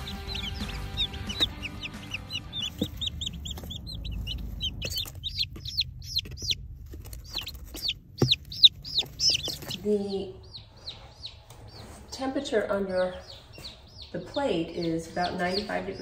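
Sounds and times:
chicks peeping: 0:00.0 - 0:16.0
low rumble: 0:02.0 - 0:07.2.

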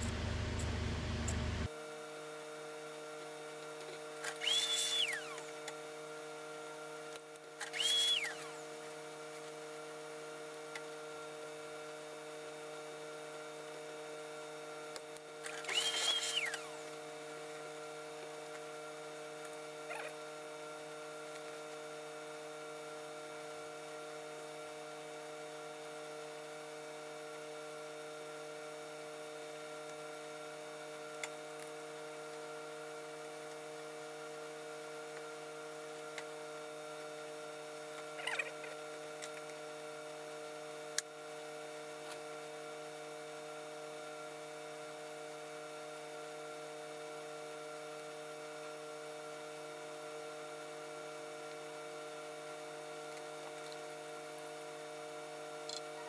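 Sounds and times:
electrical hum: 0:00.0 - 0:01.7
high rising and falling tone: 0:00.0 - 0:01.7.

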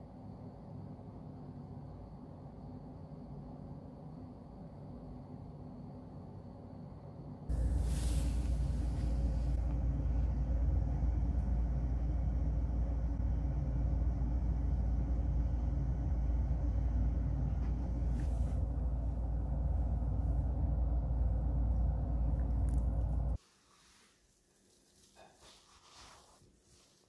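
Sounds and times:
faint hiss: 0:07.4 - 0:11.7, 0:22.5 - 0:27.0
low rumbling hum: 0:07.4 - 0:23.4.

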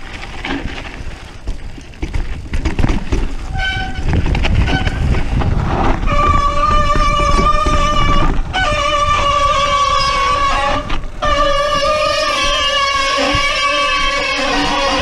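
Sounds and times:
tyres rumbling on trail: 0:00.0 - 0:15.0
bike brakes squealing: 0:06.0 - 0:15.0.

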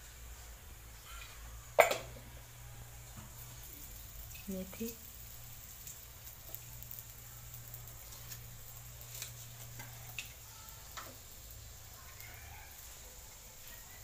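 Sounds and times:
oil ticking and popping: 0:03.0 - 0:13.0.

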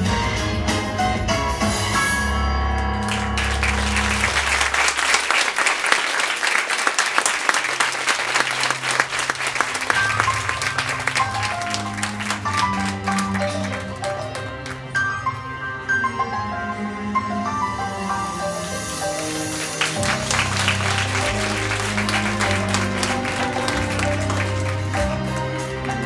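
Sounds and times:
audience clapping: 0:02.8 - 0:15.1, 0:19.2 - 0:26.0
dance music: 0:07.4 - 0:16.5, 0:17.6 - 0:26.0.

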